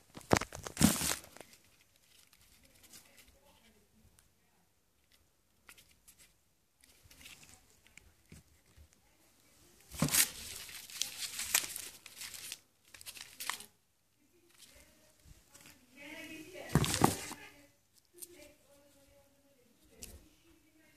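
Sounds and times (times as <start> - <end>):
plastic wrapping crinkling: 0.0 - 3.2, 9.9 - 13.7
cardboard rustling: 0.0 - 3.4, 9.8 - 13.7, 16.6 - 17.6.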